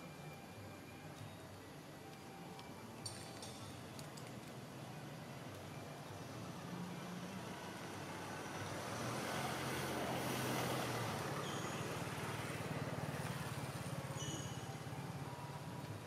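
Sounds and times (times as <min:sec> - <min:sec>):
vehicle engine passing by: 0:07.2 - 0:14.6.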